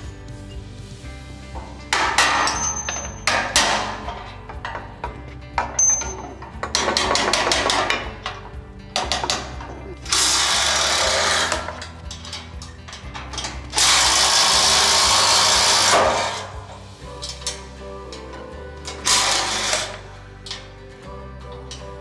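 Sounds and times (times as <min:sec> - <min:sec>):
low background music: 0:00.0 - 0:22.0
ratchet wrench clicking: 0:10.1 - 0:16.6.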